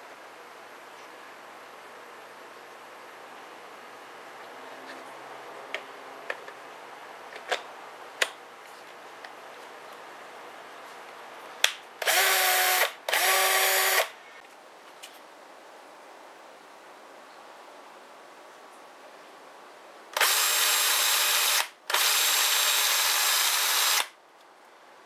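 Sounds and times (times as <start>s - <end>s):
cordless drill running: 12.0s - 14.1s, 20.2s - 24.1s.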